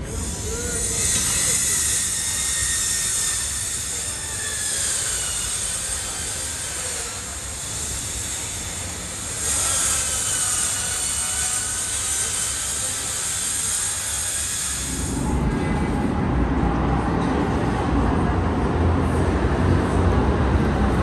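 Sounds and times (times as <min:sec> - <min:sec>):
faint tram whine: 0:00.0 - 0:21.0
tram rumble and hiss: 0:00.0 - 0:21.0.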